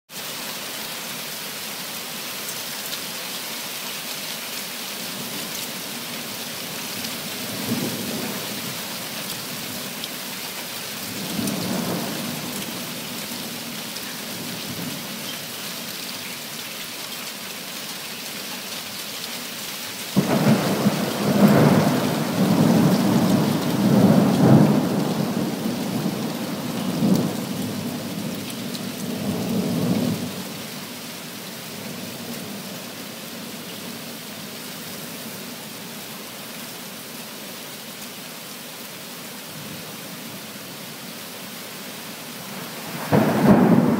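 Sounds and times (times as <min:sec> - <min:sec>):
heavy rain hissing: 0:00.2 - 0:43.9
loud thunderclap: 0:43.0 - 0:43.9
thunder rolling: 0:43.0 - 0:43.9.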